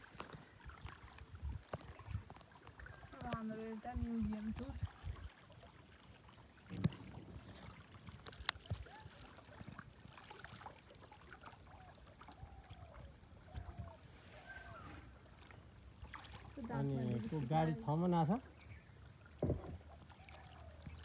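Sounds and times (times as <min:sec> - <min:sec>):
quiet water sounds: 0:00.0 - 0:21.0
faint rising and falling calls: 0:12.4 - 0:15.3.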